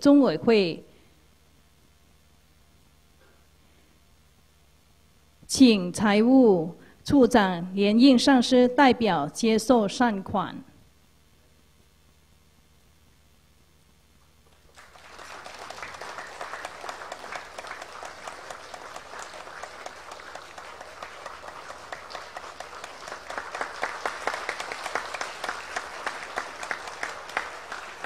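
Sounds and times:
audience applauding: 14.5s - 28.0s.

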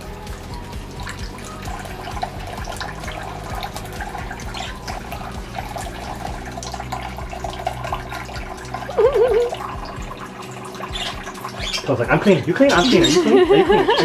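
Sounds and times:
faucet running onto plate: 0.0s - 14.0s
bird splashing and flapping: 0.4s - 13.3s
bird warbling: 10.7s - 11.9s, 12.7s - 13.3s.

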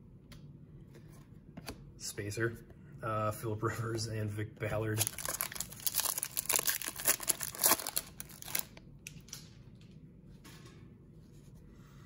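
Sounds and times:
cards rustling: 5.0s - 8.8s
foil wrapper crinkling: 5.0s - 8.8s.

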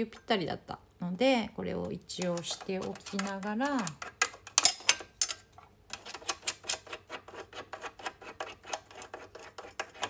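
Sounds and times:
fingers clicking on metal parts: 2.1s - 10.0s.

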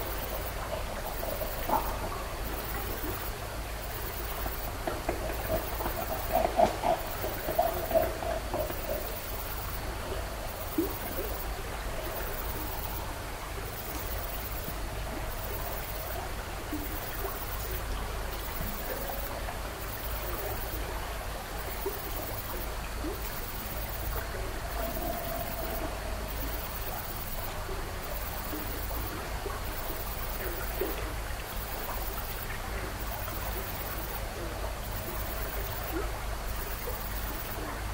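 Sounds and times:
steady water-like rushing: 0.0s - 37.9s
faint drawn-out tone: 23.4s - 29.0s.

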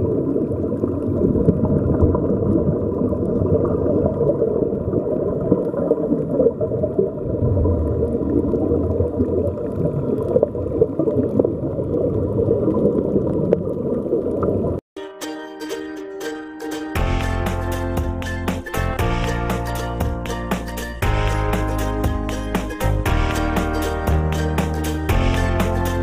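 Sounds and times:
air bubbles streaming: 0.0s - 14.8s.

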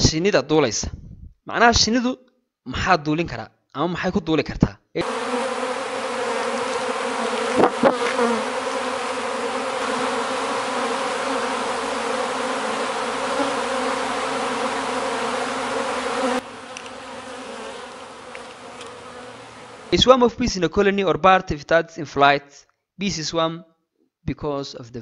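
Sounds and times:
bees buzzing: 5.0s - 20.0s.

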